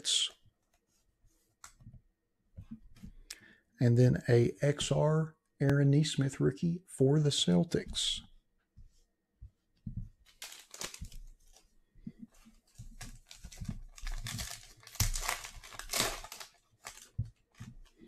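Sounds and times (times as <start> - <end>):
foil wrapper crinkling and tearing: 10.3 - 11.6, 12.9 - 17.7.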